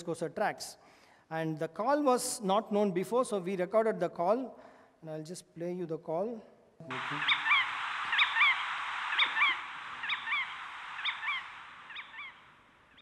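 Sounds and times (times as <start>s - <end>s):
recording hiss: 6.8s - 13.0s.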